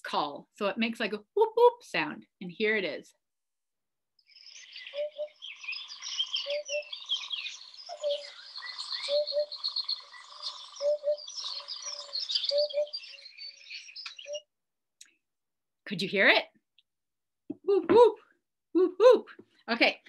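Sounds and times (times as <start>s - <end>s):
birds chirping: 4.2s - 14.5s.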